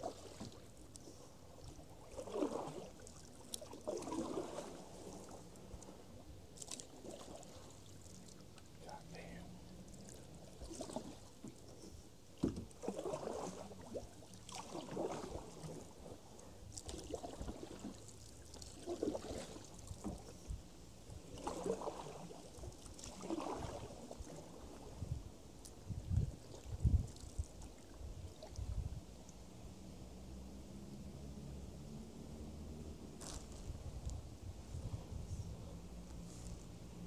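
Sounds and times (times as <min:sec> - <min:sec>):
paddle swishing through water: 0:00.0 - 0:29.4, 0:30.2 - 0:37.0
paddle knock: 0:12.4 - 0:13.6.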